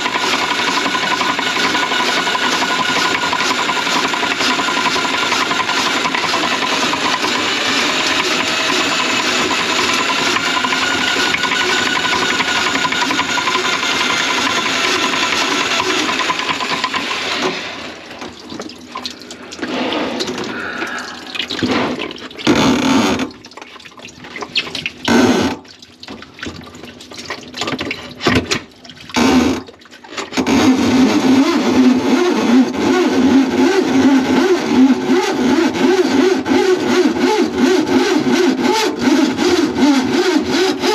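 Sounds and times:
drain cleaning machine motor: 0:00.0 - 0:23.6, 0:29.2 - 0:40.9
water flowing: 0:17.5 - 0:30.4.

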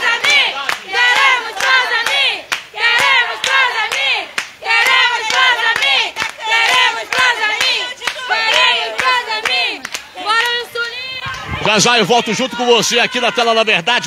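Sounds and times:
group chanting loudly: 0:00.0 - 0:13.7
hand claps: 0:00.2 - 0:10.6.

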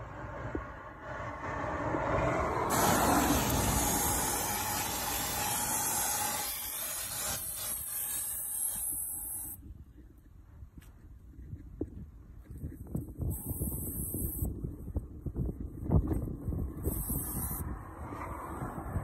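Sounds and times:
aerosol can spraying hiss: 0:02.7 - 0:09.6, 0:16.9 - 0:17.6.

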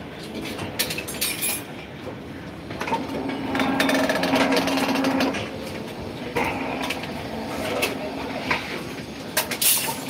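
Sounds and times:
bending machine humming: 0:02.1 - 0:09.3.

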